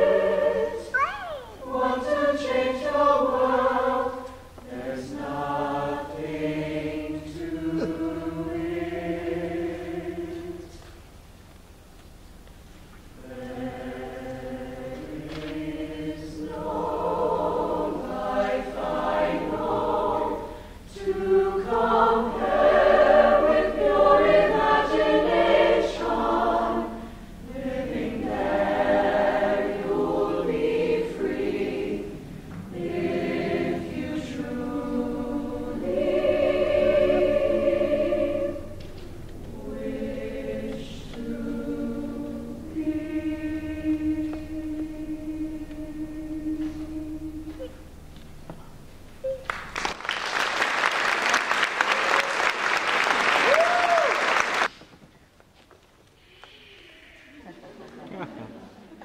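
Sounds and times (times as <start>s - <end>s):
choir of mixed voices singing: 0.0s - 10.8s, 13.1s - 47.9s.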